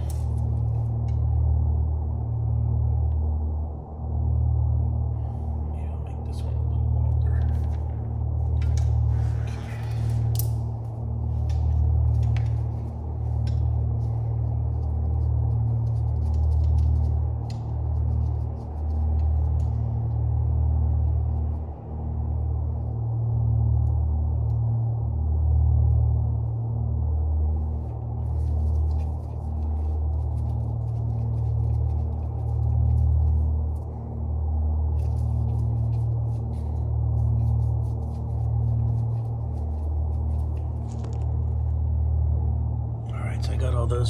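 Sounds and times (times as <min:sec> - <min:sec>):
low machine hum: 0:00.0 - 0:44.0.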